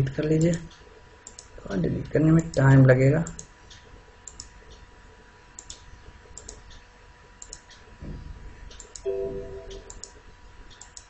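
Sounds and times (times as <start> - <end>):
brief electronic tone: 9.0 - 10.1.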